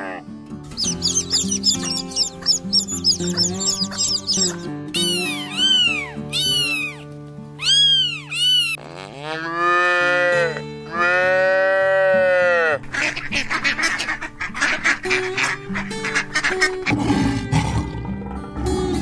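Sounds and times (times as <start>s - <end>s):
background music low notes: 0.0s - 8.8s, 9.4s - 19.0s
duck quacking: 0.8s - 7.0s, 12.8s - 17.0s
cat meowing: 5.0s - 7.0s, 7.6s - 8.8s
cow mooing: 9.1s - 12.8s.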